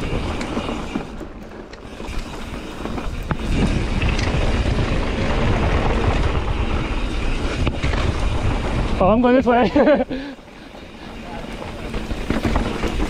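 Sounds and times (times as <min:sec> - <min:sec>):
bike rattling over ground: 0:00.0 - 0:13.0
wind rushing over microphone: 0:01.9 - 0:10.2.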